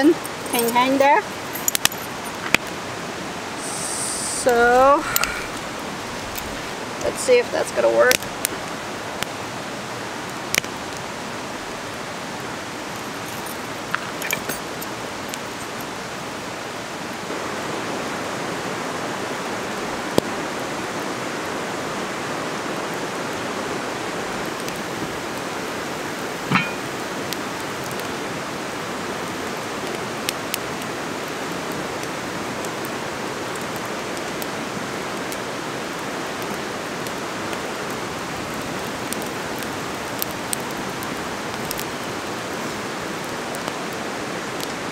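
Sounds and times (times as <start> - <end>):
creek water flowing: 0.0 - 44.9
clicks and knocks: 26.5 - 26.8.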